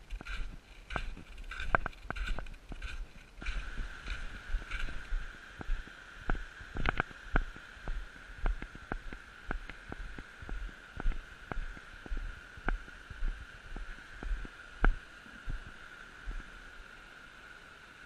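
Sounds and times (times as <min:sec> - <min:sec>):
footsteps on packed snow: 0:00.0 - 0:06.5
steady high hum: 0:00.0 - 0:18.0.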